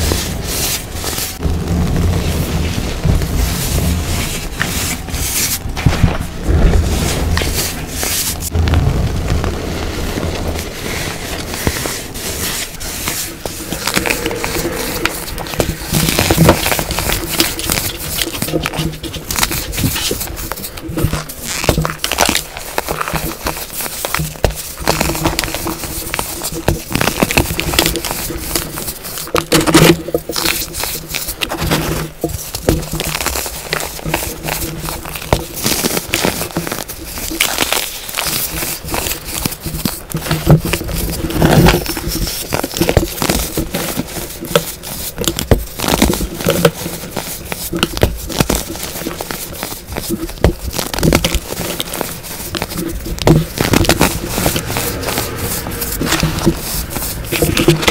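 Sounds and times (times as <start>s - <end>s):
baking soda crunching: 9.8s - 57.9s.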